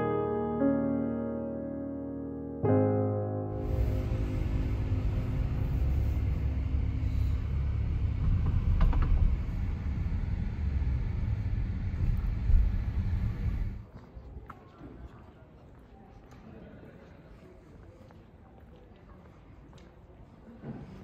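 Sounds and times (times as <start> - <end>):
car tyres and engine rumble: 3.6 - 13.8.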